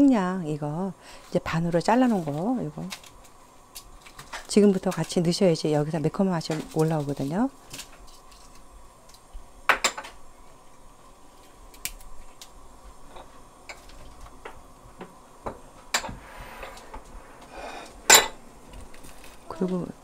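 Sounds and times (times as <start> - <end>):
liquid simmering with clicks and pops: 11.4 - 17.2.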